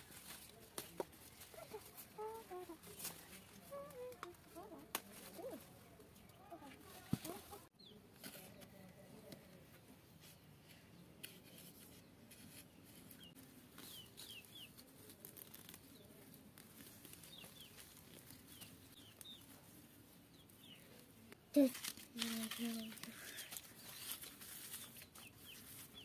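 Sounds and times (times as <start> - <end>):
chicks peeping: 13.9 - 14.8.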